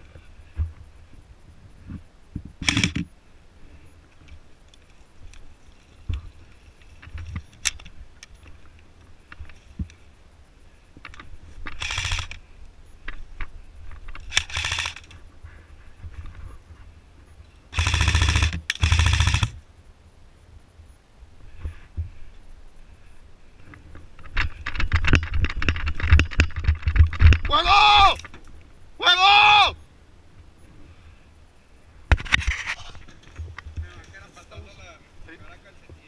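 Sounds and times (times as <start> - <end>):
airsoft rifle full-auto bursts: 2.6 - 3.0, 11.8 - 12.4, 14.3 - 15.1, 17.7 - 19.6.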